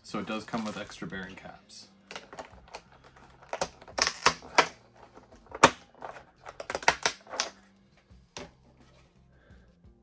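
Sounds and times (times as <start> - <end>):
plastic packaging crinkling: 0.2 - 1.0.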